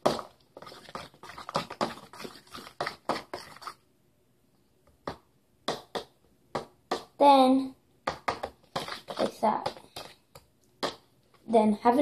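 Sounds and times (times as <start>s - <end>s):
fork tapping and scraping bowl: 0.0s - 3.8s, 8.1s - 11.0s.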